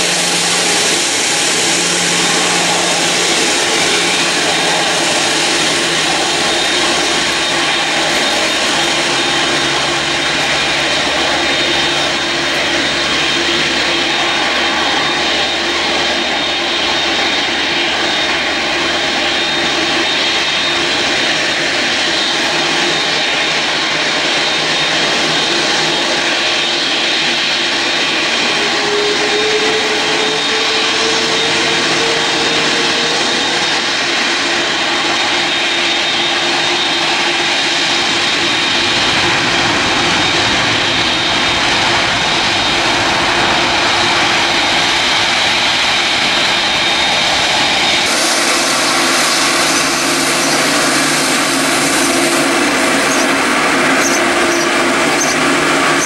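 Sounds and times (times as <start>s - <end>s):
deep jet rumble: 0.0s - 24.3s
jet engines roaring: 0.0s - 56.0s.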